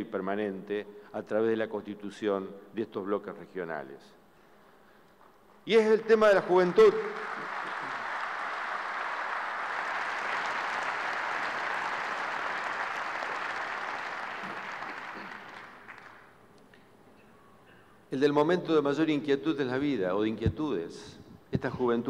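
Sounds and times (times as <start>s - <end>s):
audience applauding: 6.3s - 16.4s.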